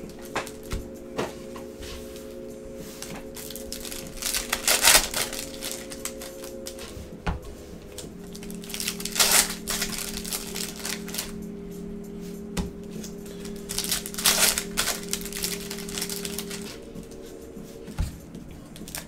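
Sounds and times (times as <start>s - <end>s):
foil packs crinkling: 0.0s - 0.8s, 3.0s - 6.9s, 7.9s - 11.4s, 12.9s - 16.9s, 18.7s - 19.0s
cards being shuffled: 2.8s - 7.0s, 7.9s - 11.4s, 12.6s - 19.0s.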